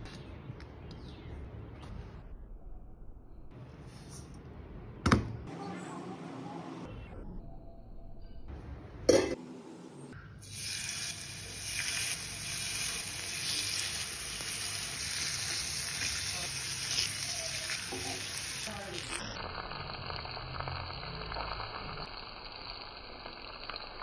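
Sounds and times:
fish sizzling in oil: 10.4 - 24.0.

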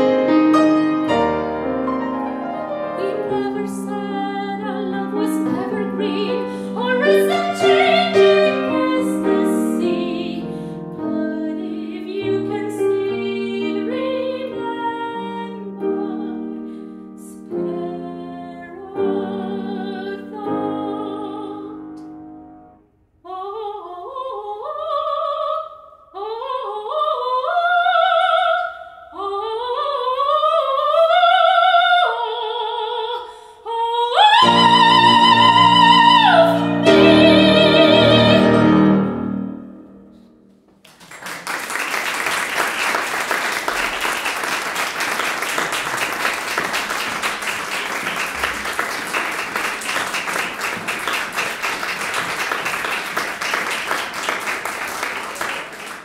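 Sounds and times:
piano chords: 0.0 - 22.9, 34.3 - 40.8
woman singing classical song: 2.6 - 22.0, 23.2 - 39.8
applause: 40.8 - 56.0.

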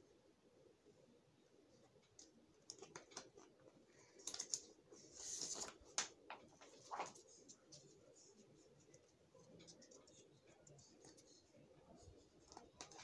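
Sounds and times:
paper rustling: 4.2 - 10.1.

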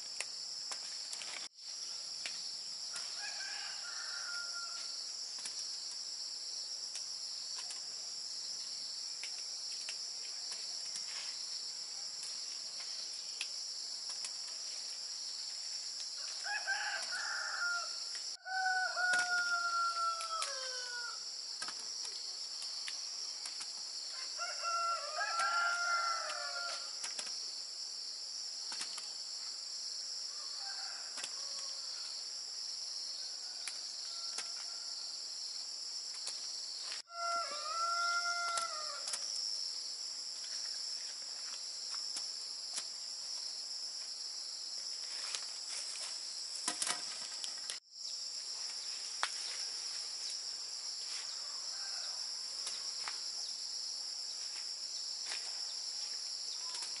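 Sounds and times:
insects droning: 0.0 - 57.0
rooster crowing: 3.1 - 4.9, 16.2 - 21.2, 24.1 - 27.0, 30.3 - 31.9, 37.1 - 39.1, 51.4 - 52.3.

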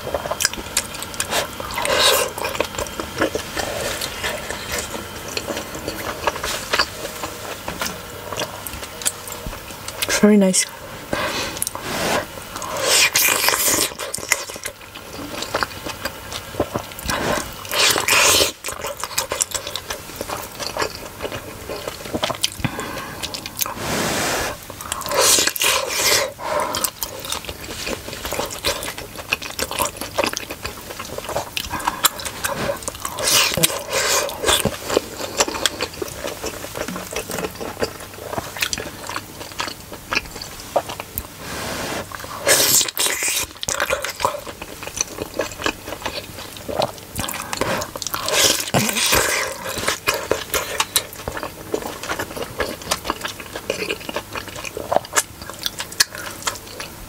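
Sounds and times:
wet chewing and smacking: 0.0 - 10.2, 12.5 - 23.8, 24.5 - 41.4, 42.0 - 57.0.

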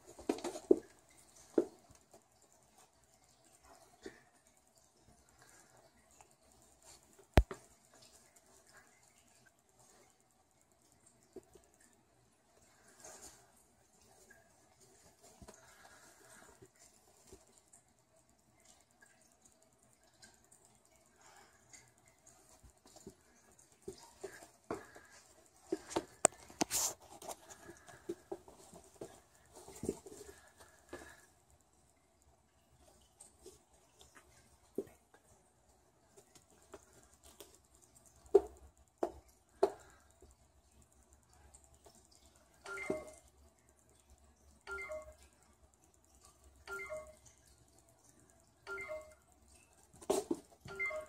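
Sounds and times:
cats scuffling and thumping: 0.0 - 4.5, 22.3 - 31.4, 50.0 - 50.7.

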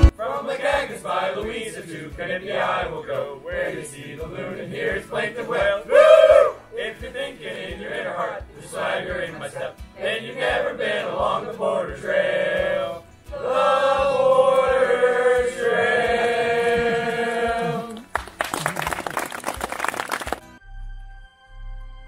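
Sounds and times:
steady low beat: 0.0 - 1.6
group singing folk song: 0.0 - 18.3
audience applauding: 16.7 - 20.6.

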